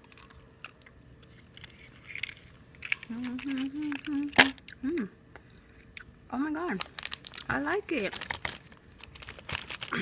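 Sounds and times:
woman humming: 0:03.1 - 0:05.2.

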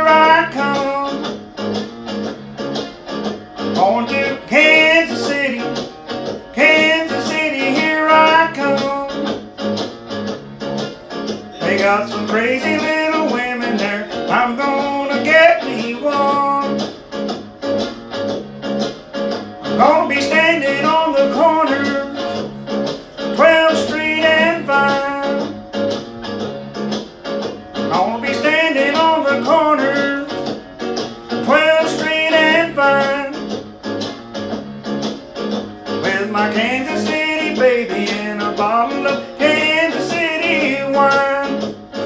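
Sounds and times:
person singing: 0:00.0 - 0:01.3, 0:03.7 - 0:09.3, 0:11.4 - 0:16.8, 0:19.7 - 0:22.5, 0:23.2 - 0:25.5, 0:27.9 - 0:30.5, 0:31.3 - 0:33.5, 0:36.0 - 0:41.8
guitar playing: 0:00.0 - 0:42.0.

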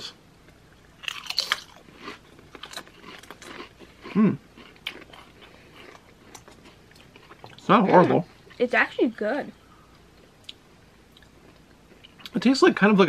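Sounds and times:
people chewing crisps: 0:00.0 - 0:08.6, 0:09.8 - 0:12.4
crisps crunching: 0:01.0 - 0:08.2.

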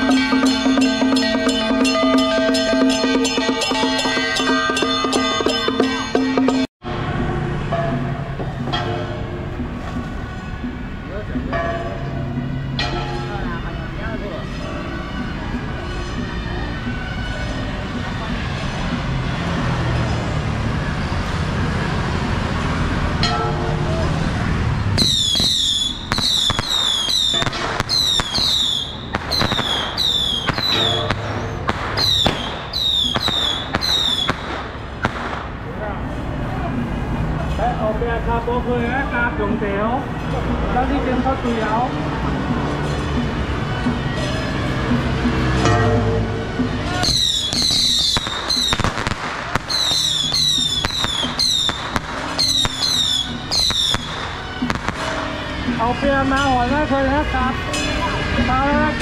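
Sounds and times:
whistling firecrackers: 0:24.8 - 0:35.8, 0:46.9 - 0:55.7
firecracker cracks: 0:25.0 - 0:35.8, 0:47.0 - 0:55.6.

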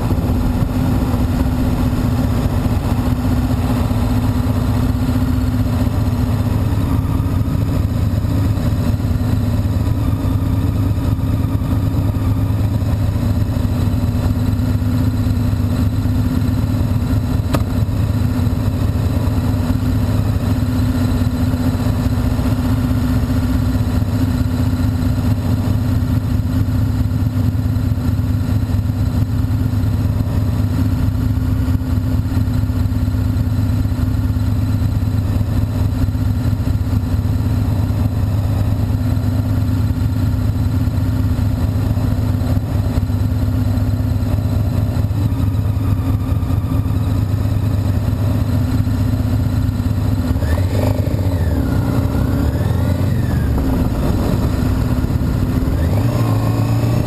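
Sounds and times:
motorcycle engine idling and revving: 0:00.0 - 0:57.0.

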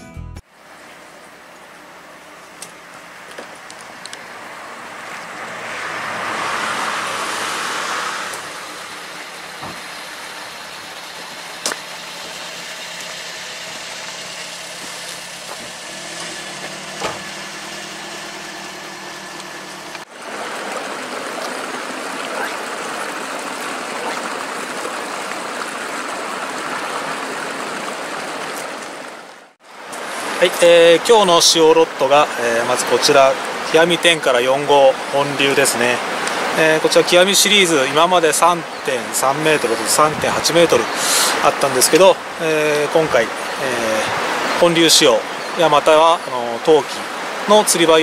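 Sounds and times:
river flowing: 0:00.4 - 0:48.0
vehicle passing: 0:03.0 - 0:28.4
car engine idling: 0:08.3 - 0:24.5.

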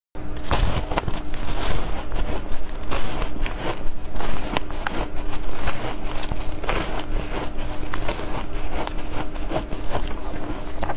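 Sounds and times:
shaved ice crunching: 0:00.5 - 0:10.9.

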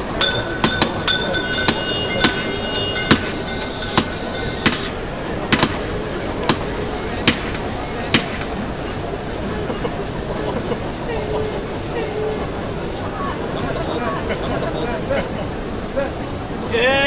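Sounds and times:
high metallic ringing: 0:00.0 - 0:05.1.

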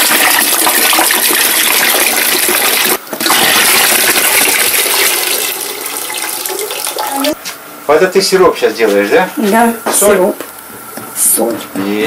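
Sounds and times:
water pouring into vessel: 0:00.0 - 0:07.3.

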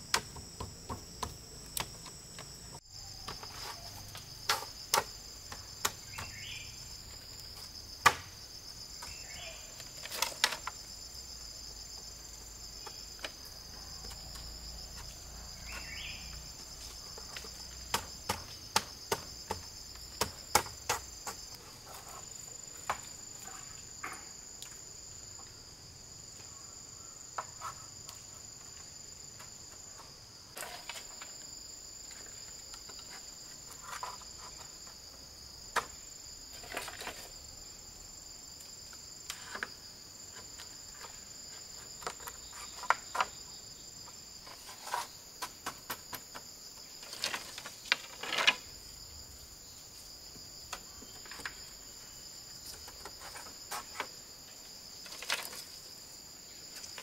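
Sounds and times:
insects chirring: 0:00.0 - 0:57.0.

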